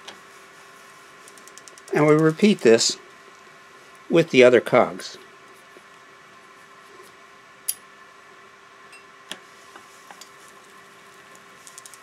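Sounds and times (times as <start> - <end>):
bicycle cassette ticking: 1.3 - 2.3, 11.6 - 12.0.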